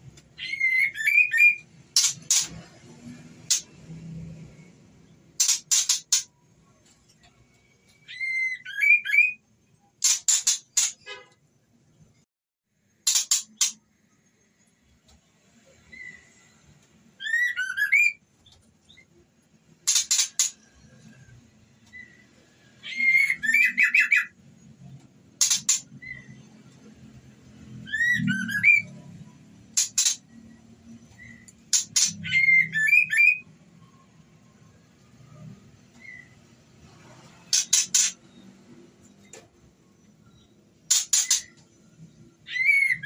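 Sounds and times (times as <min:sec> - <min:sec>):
bird whistled chirps: 0:00.4 - 0:01.6, 0:08.0 - 0:09.4, 0:17.2 - 0:18.2, 0:22.9 - 0:24.3, 0:27.8 - 0:29.0, 0:32.1 - 0:33.5
bird harsh clicking notes: 0:05.4 - 0:06.3, 0:10.0 - 0:11.1, 0:13.0 - 0:13.8, 0:19.8 - 0:20.6, 0:25.4 - 0:25.9, 0:29.7 - 0:30.3, 0:37.5 - 0:38.2, 0:40.9 - 0:41.7.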